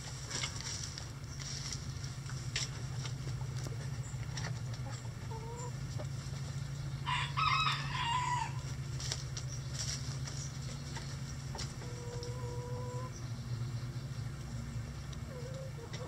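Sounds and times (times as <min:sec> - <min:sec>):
soft hen clucks: 0:03.4 - 0:08.8, 0:10.3 - 0:13.3, 0:15.1 - 0:16.0
rooster crowing: 0:07.0 - 0:08.7.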